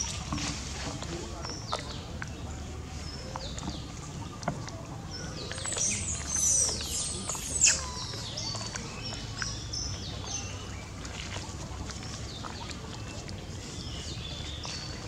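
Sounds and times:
animal chirping and whistling: 0:05.6 - 0:08.3.

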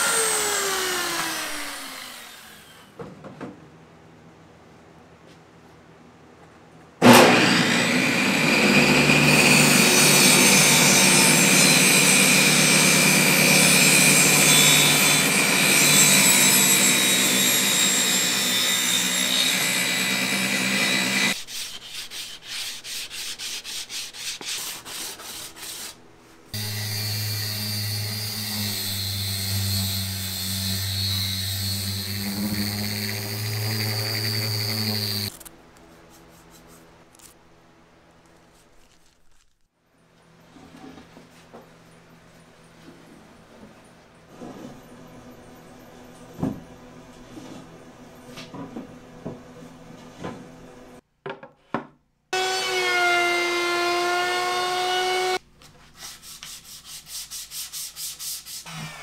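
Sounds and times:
table saw cutting board: 0:00.0 - 0:02.9, 0:07.0 - 0:35.4, 0:52.4 - 0:55.4
power tool humming: 0:26.6 - 0:35.3.

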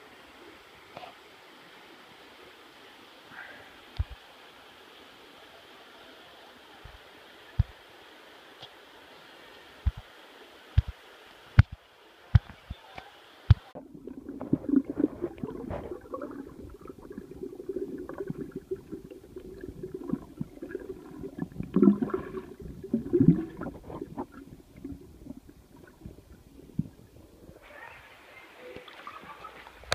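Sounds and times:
underwater bubbling and gurgling: 0:13.6 - 0:27.6.

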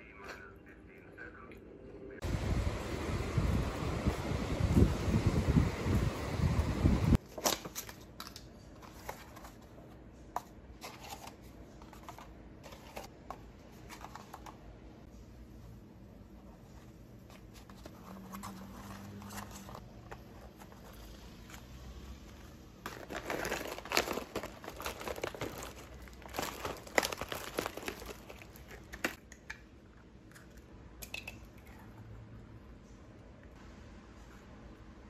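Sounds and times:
wind buffeting microphone: 0:02.2 - 0:07.2
paper rustling: 0:07.2 - 0:14.7, 0:16.5 - 0:21.7, 0:22.8 - 0:29.2.

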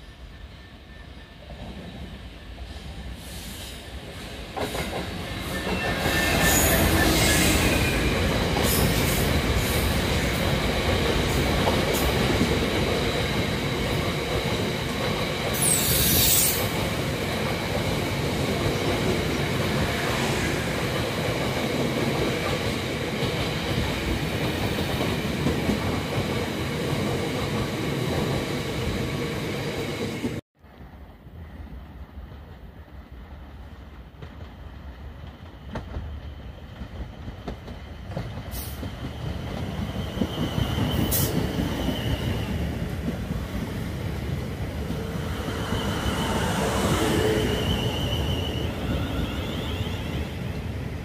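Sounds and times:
diesel locomotive passing: 0:00.0 - 0:51.0
high wheel squeal: 0:05.4 - 0:08.2, 0:45.2 - 0:50.4.

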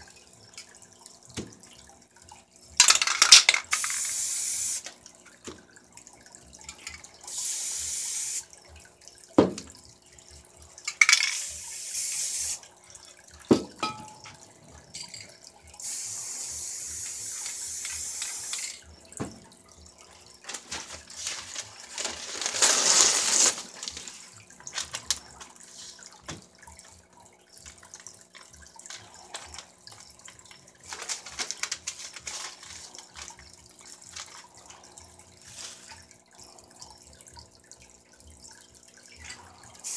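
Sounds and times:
spray paint can hissing: 0:02.8 - 0:04.9, 0:07.3 - 0:08.5, 0:11.0 - 0:12.6, 0:15.8 - 0:18.8.

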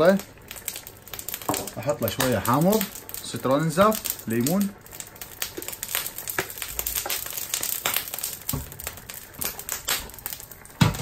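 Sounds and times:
sauce bubbling in a saucepan: 0:00.0 - 0:11.0.

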